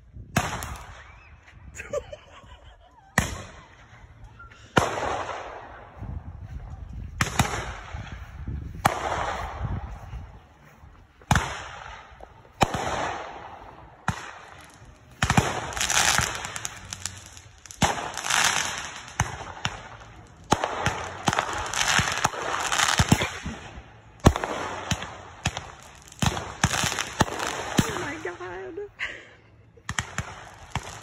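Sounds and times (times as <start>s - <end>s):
fireworks bangs: 6.6s - 10.0s, 11.2s - 28.4s, 29.8s - 31.0s
fireworks hissing and crackling: 11.2s - 28.9s, 29.8s - 31.0s.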